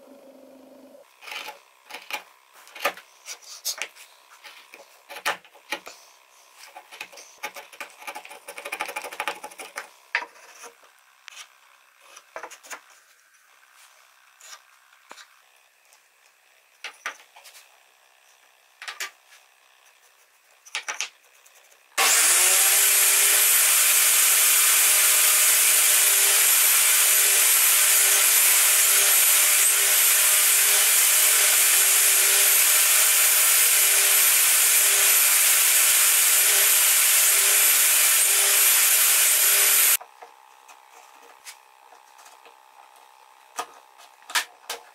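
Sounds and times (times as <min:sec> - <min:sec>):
taps and scrapes on wood: 0:06.6 - 0:13.0
table saw running: 0:22.0 - 0:40.0.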